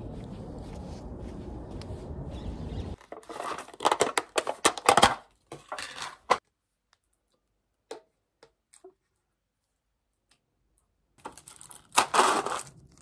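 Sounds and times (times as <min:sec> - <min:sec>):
crackling clicks and rustles: 0:03.0 - 0:07.6, 0:10.2 - 0:13.0.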